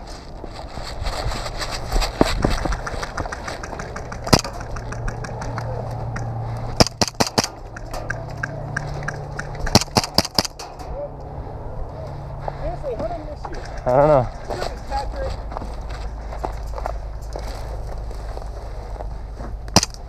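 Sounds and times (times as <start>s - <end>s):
low hum: 0.0s - 20.0s
airsoft gun shots: 6.8s - 8.1s, 9.6s - 10.6s, 19.7s - 20.0s.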